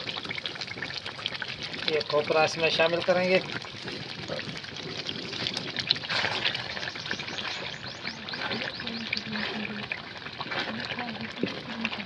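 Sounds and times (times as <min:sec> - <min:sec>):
mixture bubbling in hot oil: 0:00.0 - 0:12.0
wooden spatula stirring: 0:03.4 - 0:12.0.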